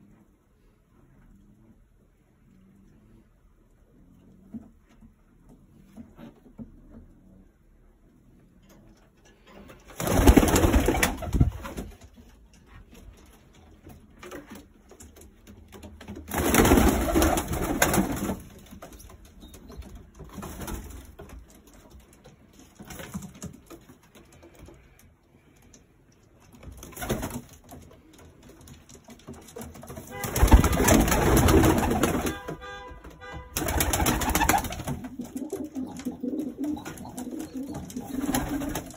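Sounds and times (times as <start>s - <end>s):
pigeons cooing: 34.0s - 38.9s.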